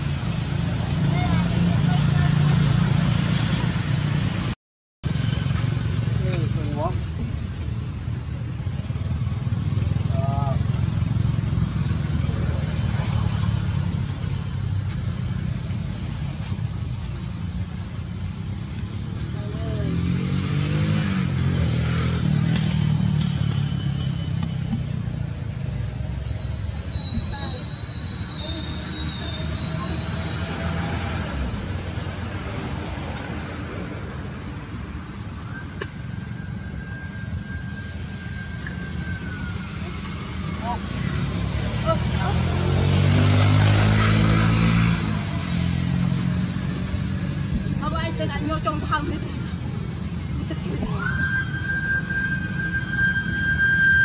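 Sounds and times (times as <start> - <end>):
faint thin whistle-like tone: 50.9 - 54.0.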